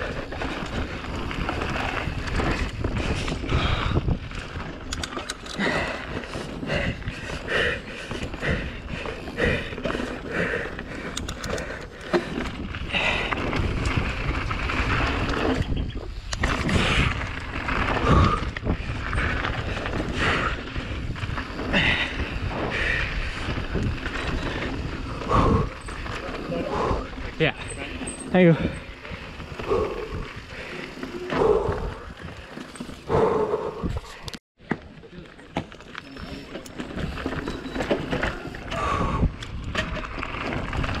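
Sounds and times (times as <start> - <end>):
wind buffeting microphone: 0.0 - 34.4, 36.8 - 41.0
bike rattling: 0.0 - 41.0
hard breathing: 2.3 - 4.2, 5.4 - 13.6, 16.6 - 34.4, 36.2 - 39.5.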